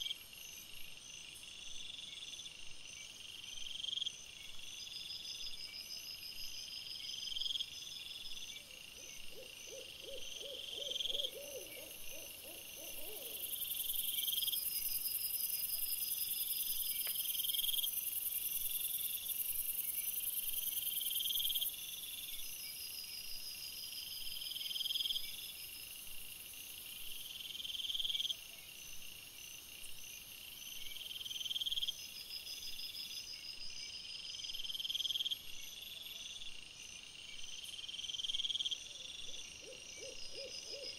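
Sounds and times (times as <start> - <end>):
insects chirping: 0.0 - 40.9
pulsed hoot-like calls: 9.3 - 13.5, 39.6 - 40.9.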